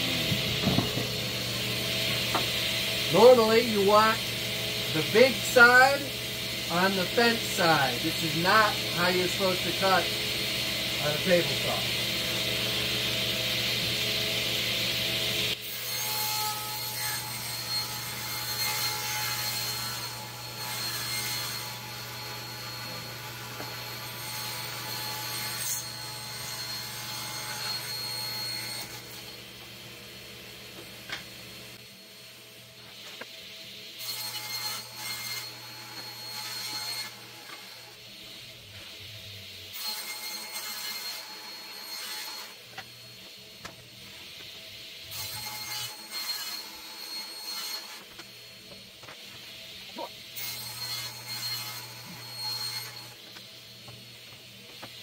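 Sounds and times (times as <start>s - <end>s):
motor humming: 0.0s - 3.1s
table saw cutting plywood: 0.0s - 29.7s, 30.8s - 55.0s
plywood boards knocking on bench: 0.3s - 1.1s.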